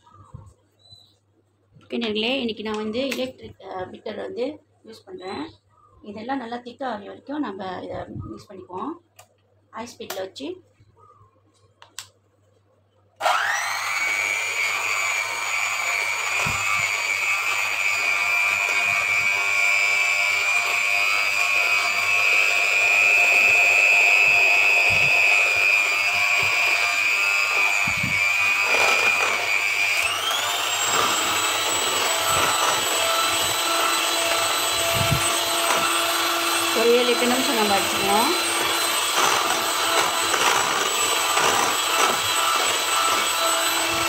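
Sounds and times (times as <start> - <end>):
electric hand mixer whining: 13.2 - 44.0.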